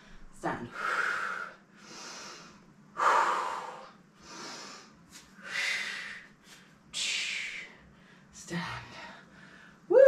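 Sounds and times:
woman breathing hard: 0.7s - 6.8s.

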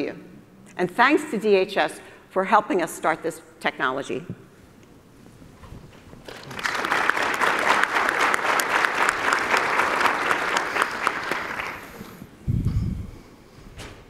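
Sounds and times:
audience applauding: 6.3s - 12.2s.

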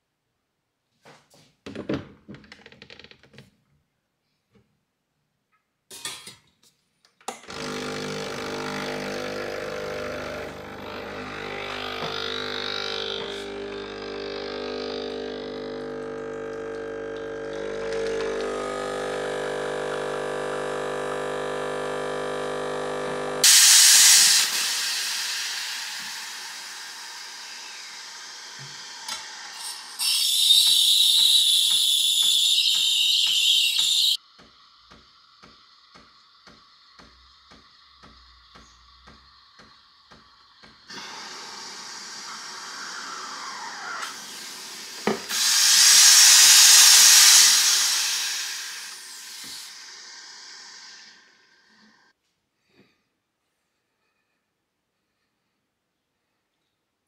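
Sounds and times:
high-pitched hiss: 23.4s - 51.9s
loud hiss: 23.4s - 52.0s.

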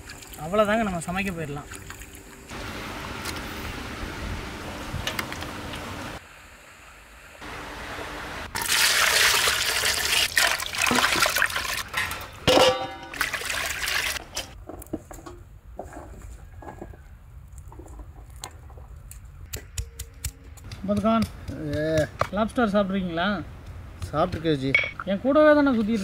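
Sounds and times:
water pouring and splashing: 0.0s - 6.2s, 8.5s - 14.6s.

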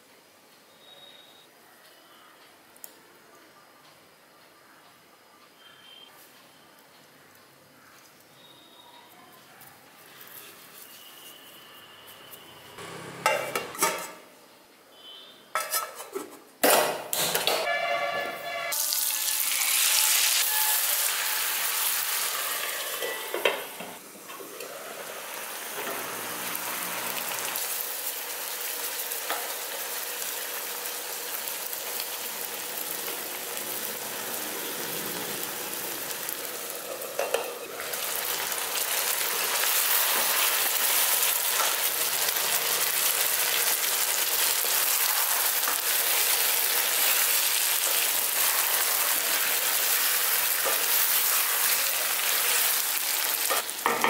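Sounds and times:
chicken sizzling in hot fat: 17.6s - 54.0s.

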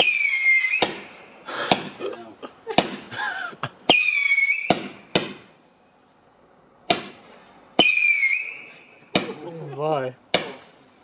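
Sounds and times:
firework whistle: 0.0s - 2.0s, 3.9s - 5.5s, 7.8s - 9.4s
firework bangs: 0.0s - 3.2s, 3.8s - 5.6s, 6.8s - 10.9s.

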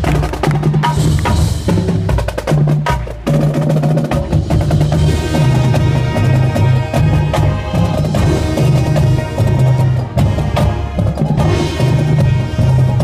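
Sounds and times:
drum line percussion hits: 0.0s - 13.0s
low brass chords: 4.9s - 13.0s.

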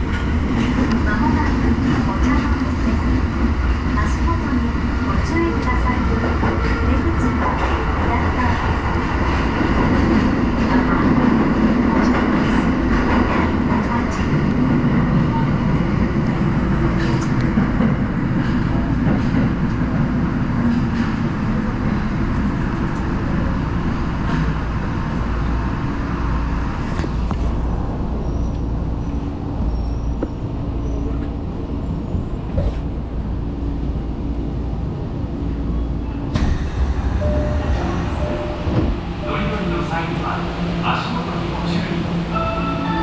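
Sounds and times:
subway train wheels rumbling: 0.0s - 43.0s.

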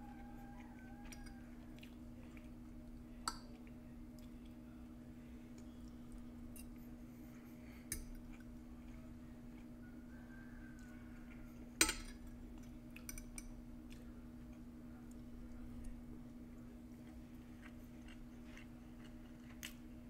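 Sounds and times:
steady low hum: 0.0s - 20.0s
metal fork clinking on plate: 11.8s - 12.2s.

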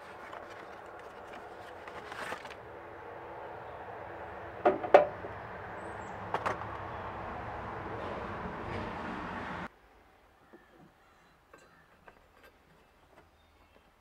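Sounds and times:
cardboard box handling: 0.0s - 2.6s
sharp knocks: 4.6s - 5.2s.

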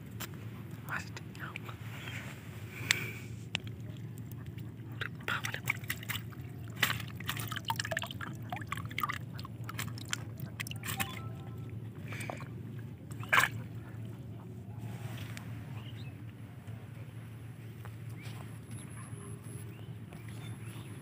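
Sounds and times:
water dripping and splashing: 3.5s - 11.3s, 13.1s - 13.8s.

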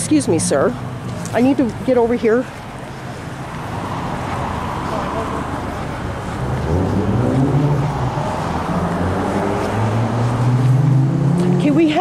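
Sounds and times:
car engine accelerating: 3.4s - 12.0s.

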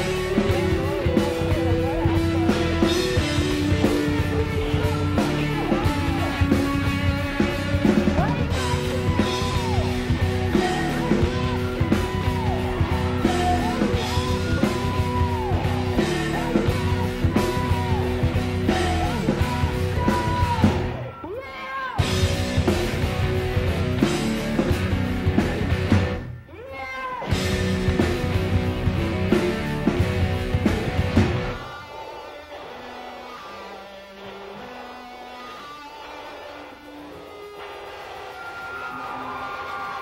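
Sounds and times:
sung vocal: 0.0s - 22.1s
live rock band playing: 0.0s - 26.5s, 27.2s - 40.0s.

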